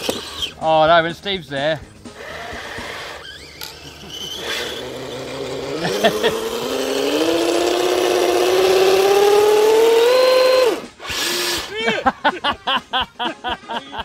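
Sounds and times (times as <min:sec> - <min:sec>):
small electric motor whining: 0:00.0 - 0:00.6, 0:02.1 - 0:11.8.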